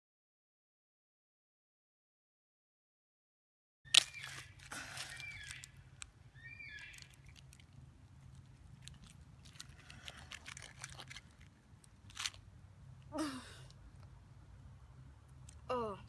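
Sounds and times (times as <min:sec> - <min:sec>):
aluminium foil crinkling: 0:03.9 - 0:06.1, 0:06.7 - 0:12.5.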